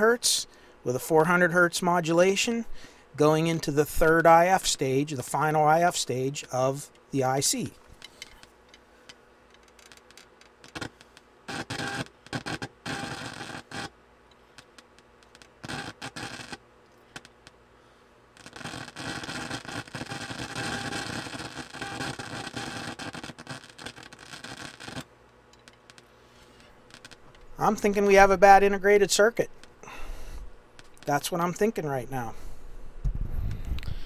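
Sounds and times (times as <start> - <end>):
radio receiver static: 18.4 - 25.1, 26.9 - 30.0.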